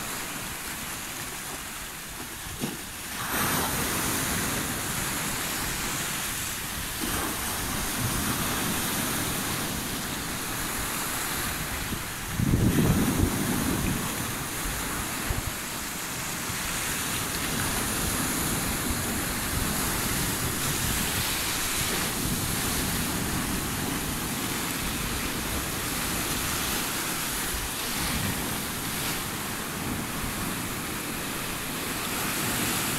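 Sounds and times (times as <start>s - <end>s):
surf washing over rocks: 0.0s - 32.9s.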